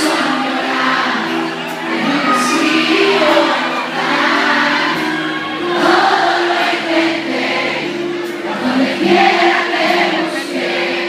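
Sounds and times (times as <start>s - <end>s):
live pop band with singing: 0.0s - 11.0s.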